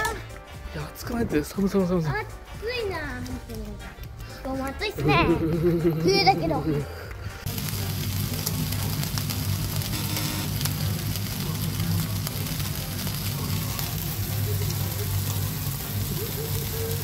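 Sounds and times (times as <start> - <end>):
food sizzling: 4.8 - 17.0.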